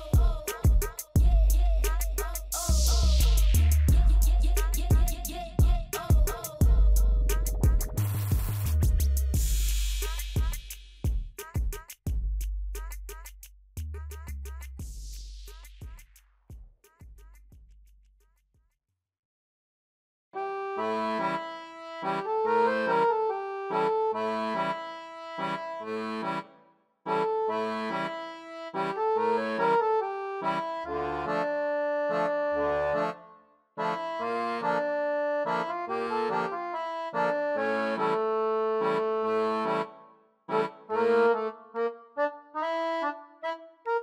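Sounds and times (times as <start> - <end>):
instrumental background music: 1.8 - 12.2, 20.4 - 44.0.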